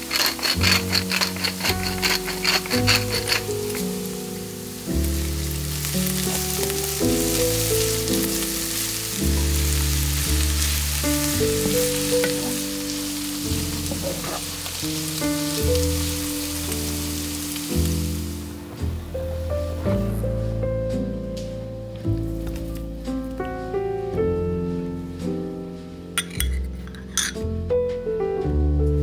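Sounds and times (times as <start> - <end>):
wooden spatula stirring: 0.0 - 4.0, 10.4 - 14.9
vegetables sizzling in a frying pan: 0.0 - 19.5
slow background music: 0.0 - 29.0.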